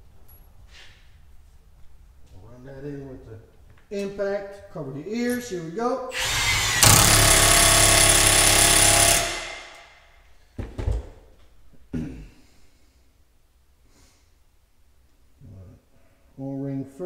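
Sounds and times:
impact wrench hammering: 6.2 - 10.0.

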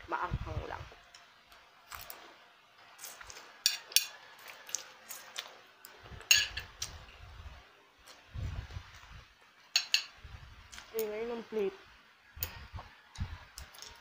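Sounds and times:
noodles slurped and chewed: 4.4 - 6.0.

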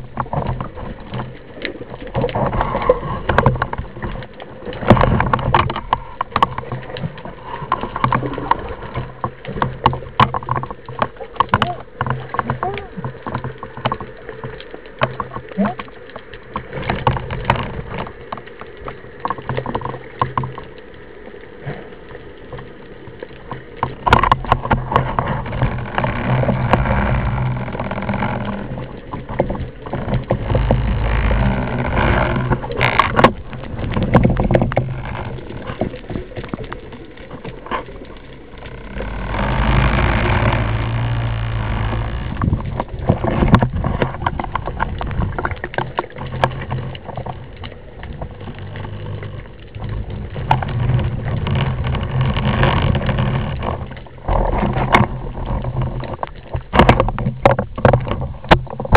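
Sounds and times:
low steady hum: 0.0 - 58.9
water rushing against camera: 0.0 - 58.9.

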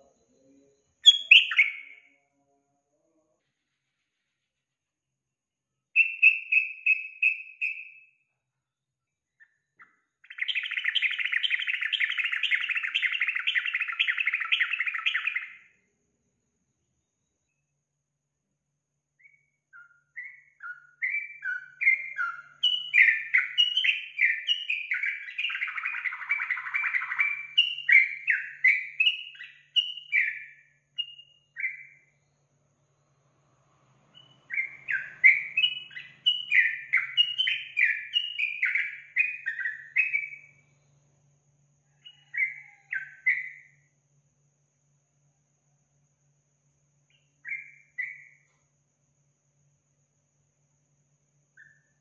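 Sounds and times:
bulbul singing: 1.0 - 2.1, 6.0 - 8.2, 9.4 - 15.7, 19.2 - 32.4, 34.1 - 41.0, 41.9 - 43.8, 47.1 - 48.5.

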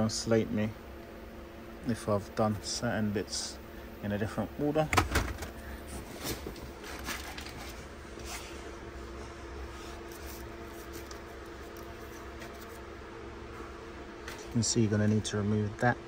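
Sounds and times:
steady low hum: 0.0 - 16.0
hand rustling wiring and trim: 4.8 - 8.6, 9.7 - 12.9.

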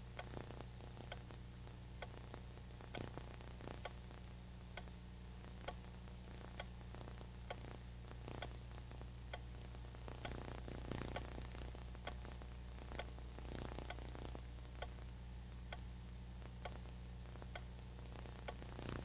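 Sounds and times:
low hum and hiss: 0.0 - 19.0.

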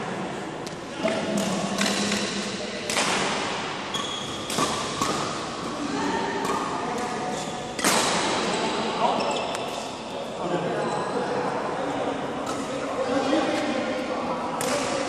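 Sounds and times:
racket hitting shuttlecock: 0.7 - 5.8, 6.4 - 8.9, 14.6 - 15.0
court shoes squeaking: 3.9 - 5.8, 6.4 - 10.2, 10.8 - 11.4.

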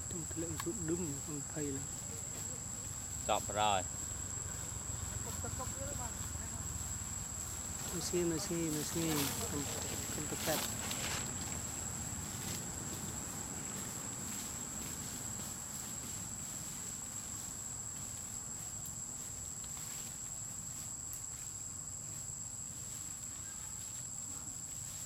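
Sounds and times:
high-pitched insect drone: 0.0 - 25.0.

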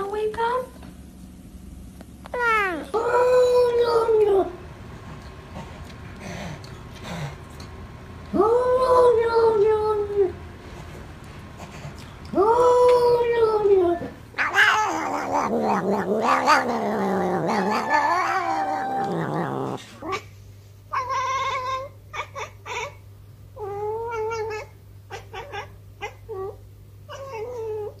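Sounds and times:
cat yowling: 2.3 - 4.2, 12.4 - 20.2, 20.9 - 23.0, 23.6 - 28.0.

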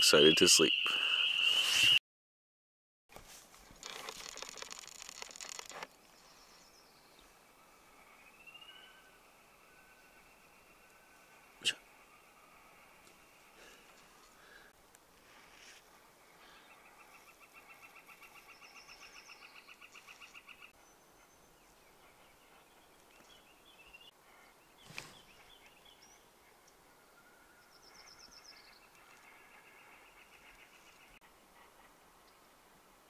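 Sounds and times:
songbird trills: 6.2 - 14.6, 16.3 - 31.2.

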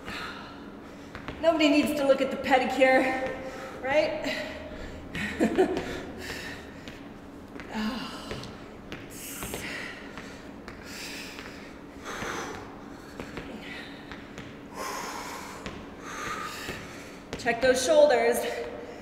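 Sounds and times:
people breathing hard: 3.3 - 17.3.

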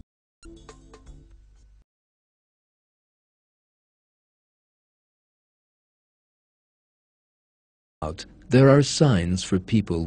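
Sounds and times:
soft background music: 0.4 - 1.8.

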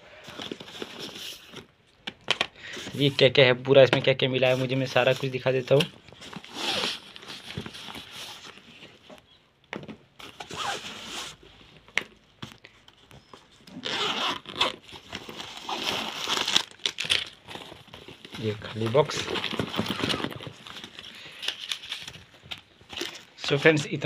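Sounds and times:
zipper being pulled: 10.5 - 11.4, 13.8 - 14.7.

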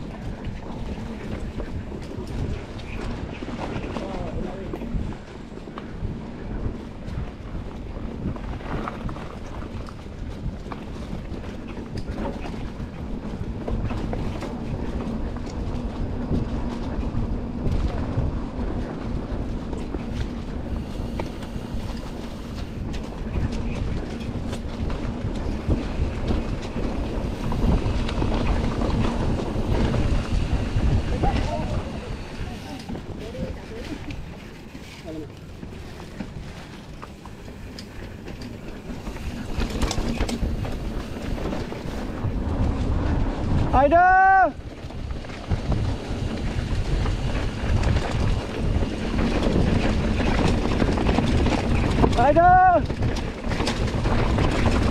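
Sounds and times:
bike rattling over bumps: 0.0 - 54.9
bike tyres rumbling on dirt: 0.0 - 54.9
wind on microphone: 0.0 - 54.9.

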